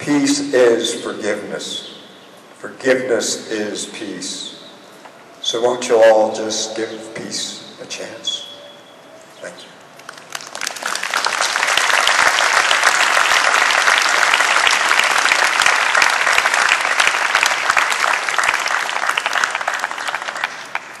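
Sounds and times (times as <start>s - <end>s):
audience applauding: 10.1s - 21.0s.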